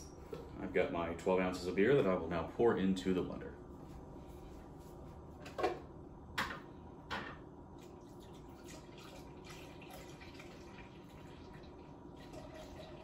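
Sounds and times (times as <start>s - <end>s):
faint steady pour: 7.8s - 13.0s.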